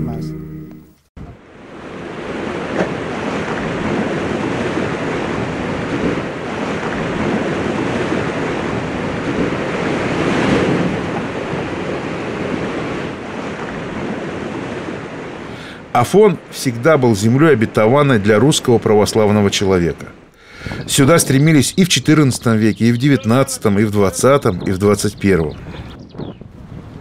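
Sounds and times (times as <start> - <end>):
wind: 1.2 - 27.0
sea waves washing ashore: 1.4 - 24.9.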